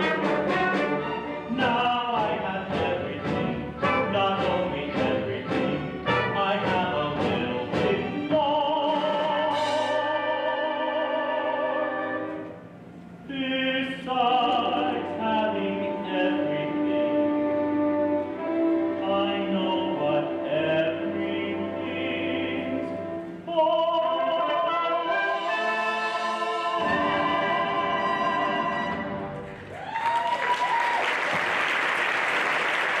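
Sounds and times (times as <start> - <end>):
duet singing: 0.0 - 29.6
orchestral accompaniment: 0.0 - 29.7
audience applause: 29.6 - 33.0.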